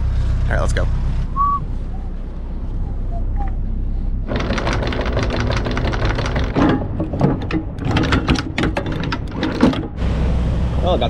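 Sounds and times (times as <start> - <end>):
anchor chain clattering: 4.3 - 9.9
boat engine drone: 9.9 - 11.0.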